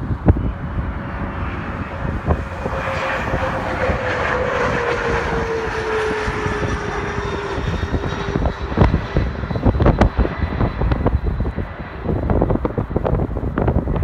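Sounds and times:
jet roar overhead: 0:00.0 - 0:14.0
wind buffeting microphone: 0:00.0 - 0:14.0.

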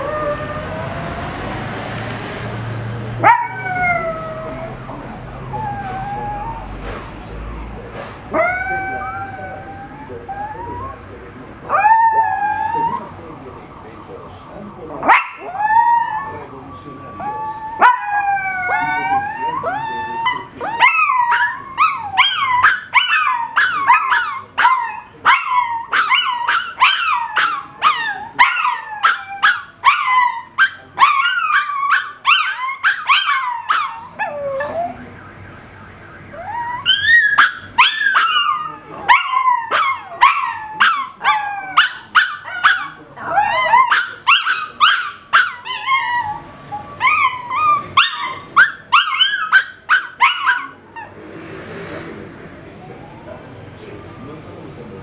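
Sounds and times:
dog howling: 0:00.0 - 0:01.8, 0:03.2 - 0:06.8, 0:08.3 - 0:13.1, 0:14.9 - 0:35.1, 0:36.3 - 0:51.2
car alarm: 0:35.0 - 0:38.2.

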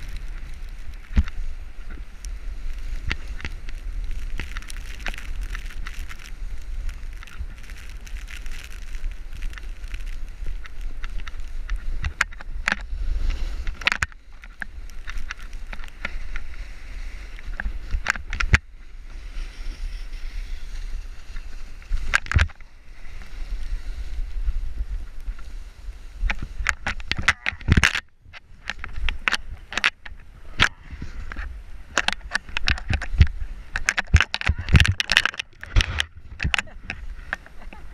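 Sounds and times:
ski edges scraping snow: 0:00.0 - 0:27.0
wind rumbling on microphone: 0:00.0 - 0:37.9.

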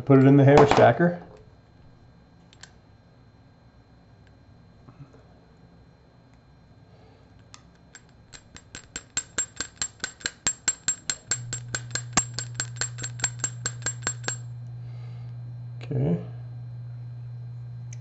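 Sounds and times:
metal hair stacker tapping: 0:08.0 - 0:14.5.

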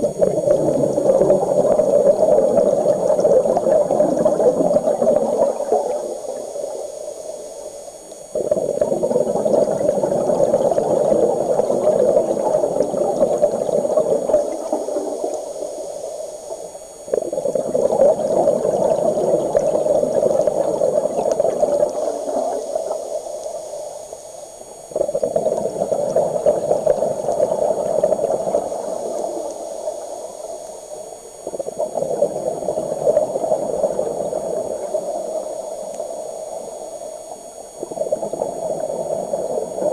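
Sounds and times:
scuba regulator exhaust bubbles: 0:00.0 - 0:39.9.

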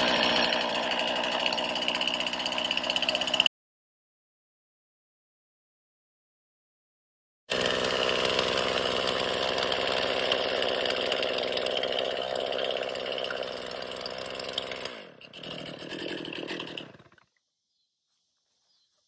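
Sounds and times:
chainsaw engine idling: 0:00.0 - 0:03.5, 0:07.5 - 0:17.4.

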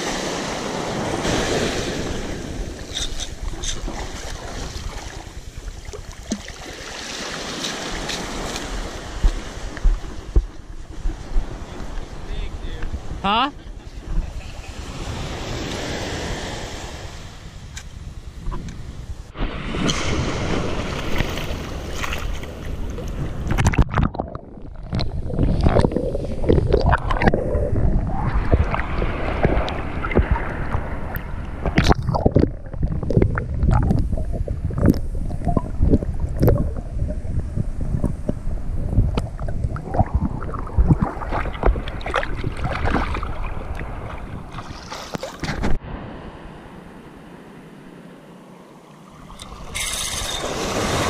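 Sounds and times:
wind on microphone: 0:00.0 - 0:06.5, 0:07.2 - 0:47.0, 0:49.2 - 0:51.0
water sloshing and splashing: 0:00.0 - 0:12.2, 0:19.7 - 0:45.8, 0:48.8 - 0:51.0.

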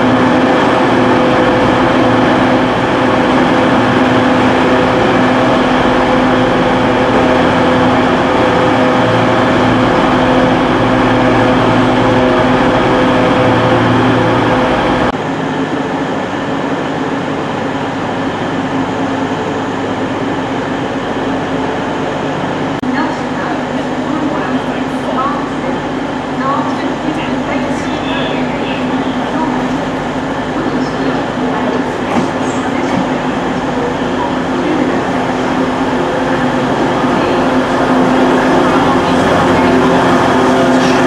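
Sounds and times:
train droning hum: 0:00.0 - 0:41.0.

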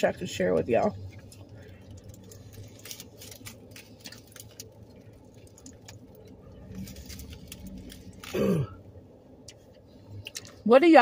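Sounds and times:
foil wrapper crinkling: 0:00.3 - 0:08.5
chewing: 0:01.1 - 0:08.4.

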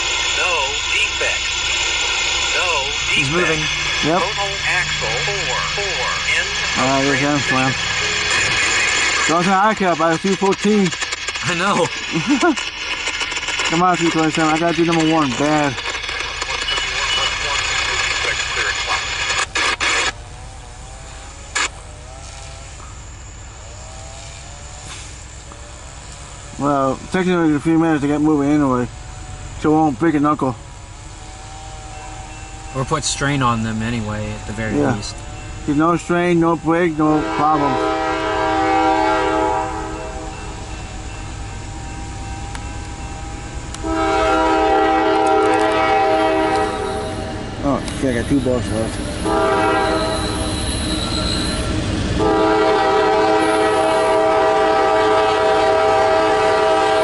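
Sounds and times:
scanner radio static bursts: 0:00.0 - 0:20.2, 0:20.8 - 0:22.7
engine rumble: 0:00.0 - 0:57.0
locomotive air horn chord: 0:37.0 - 0:40.6, 0:43.8 - 0:48.6, 0:49.2 - 0:57.0.

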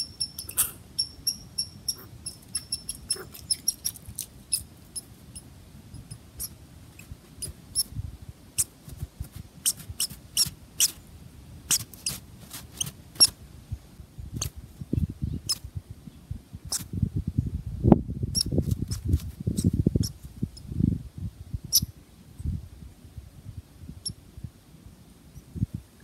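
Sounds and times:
high-pitched animal chirps: 0:00.0 - 0:05.1, 0:06.0 - 0:06.6
soft crunching in snow: 0:12.1 - 0:13.0.

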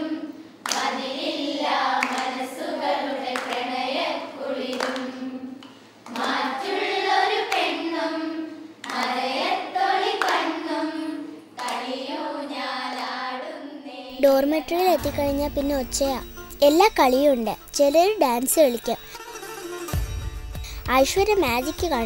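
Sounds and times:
girls singing together: 0:00.0 - 0:14.7
hand-clapping: 0:00.6 - 0:00.9, 0:02.0 - 0:02.4, 0:03.4 - 0:03.6, 0:04.7 - 0:06.4, 0:07.5 - 0:07.7, 0:08.8 - 0:09.2, 0:10.2 - 0:10.4, 0:11.6 - 0:11.9.

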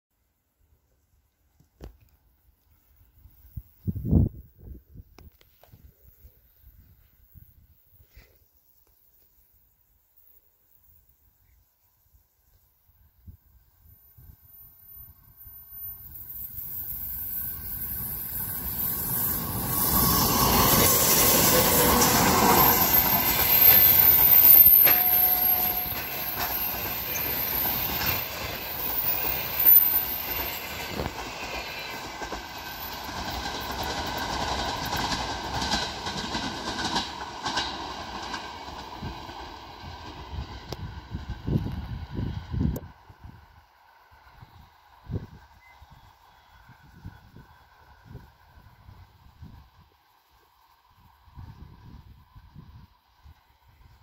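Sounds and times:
diesel locomotive engines: 0:01.1 - 0:54.0
train wheels clacking over rail joints: 0:17.8 - 0:41.6.

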